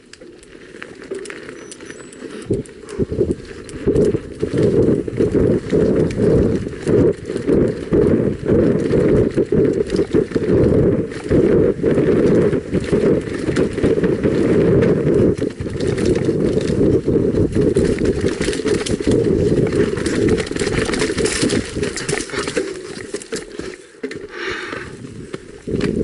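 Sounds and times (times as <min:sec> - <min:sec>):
bike rattling and knocking: 0:00.0 - 0:26.0
bike tyres rumbling on trail: 0:00.0 - 0:26.0.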